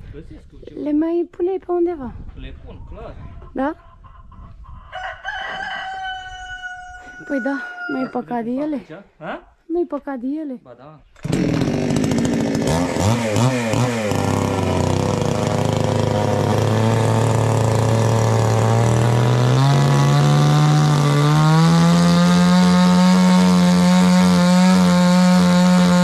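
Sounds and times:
chainsaw running: 0:11.2 - 0:26.0.

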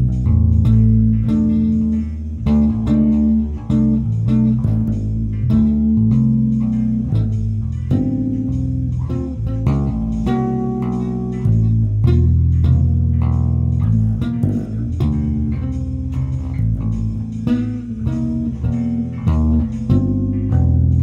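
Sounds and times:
electric bass tapping: 0:00.0 - 0:21.0.

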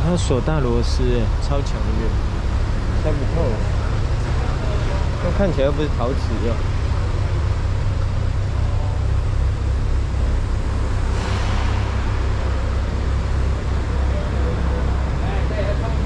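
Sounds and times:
car engines running: 0:00.0 - 0:16.0.

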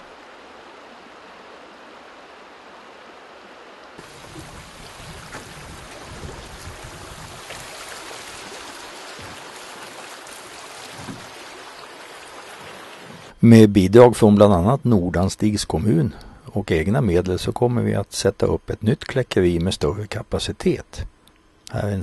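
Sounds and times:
low rumble of rapids: 0:00.0 - 0:13.4
small water splashes: 0:04.0 - 0:13.3.

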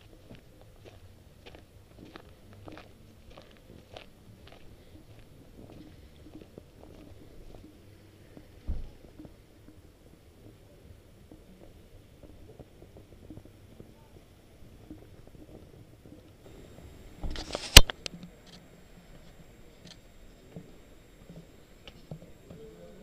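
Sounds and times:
faint low rumble: 0:00.0 - 0:23.0
brief rustle: 0:17.2 - 0:18.6
sharp loud click: 0:17.3 - 0:18.6.

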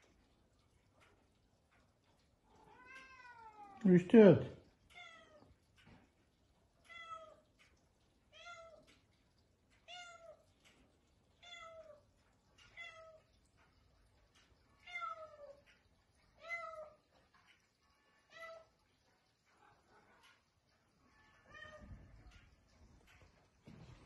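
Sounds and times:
cat meowing: 0:02.6 - 0:03.8.

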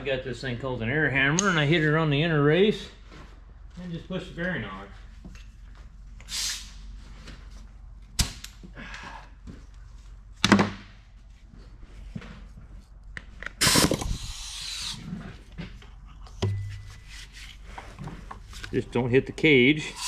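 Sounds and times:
air hammer hiss and rattle: 0:06.2 - 0:06.8, 0:13.6 - 0:15.1
knocks and clanks on steel: 0:16.4 - 0:17.1.

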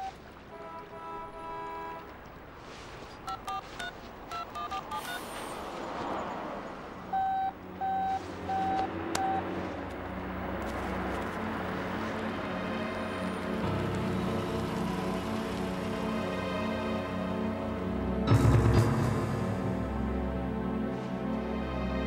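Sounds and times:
touch-tone dialling beeps: 0:00.0 - 0:00.2, 0:03.2 - 0:05.2, 0:07.1 - 0:09.5.

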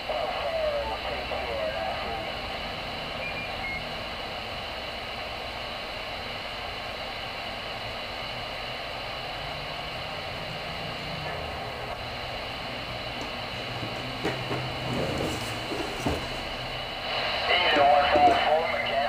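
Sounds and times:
garbled warbling radio signal: 0:00.0 - 0:04.0
radio static hiss: 0:00.0 - 0:19.0.

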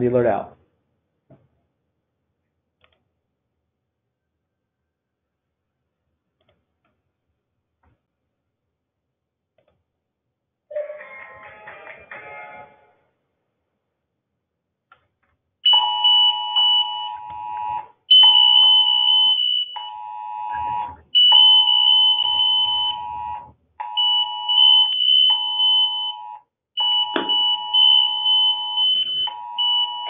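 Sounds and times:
electronic alarm chime: 0:15.7 - 0:30.0.

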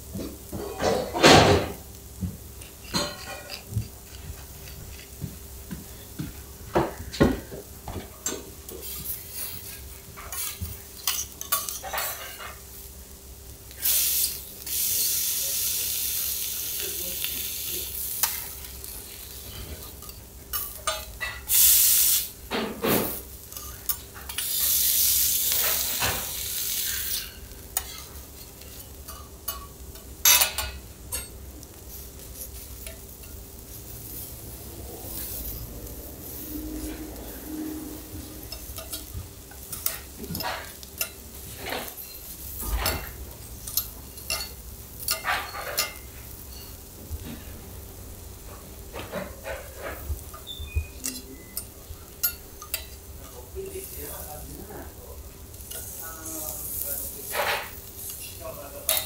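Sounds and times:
food sizzling on griddle: 0:00.0 - 0:59.0
metal spatulas clinking and scraping: 0:02.8 - 0:05.2, 0:08.8 - 0:12.6, 0:18.1 - 0:21.5, 0:27.0 - 0:31.4, 0:38.5 - 0:46.7, 0:49.0 - 0:54.0, 0:56.9 - 0:59.0.

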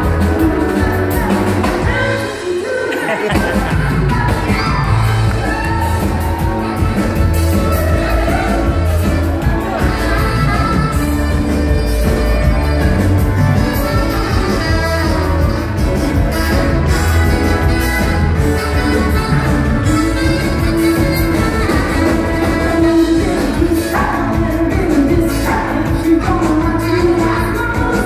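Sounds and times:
heavy bass and drums: 0:00.0 - 0:02.4, 0:03.3 - 0:28.0
live band playing amplified music: 0:00.0 - 0:28.0
person singing: 0:18.9 - 0:28.0.

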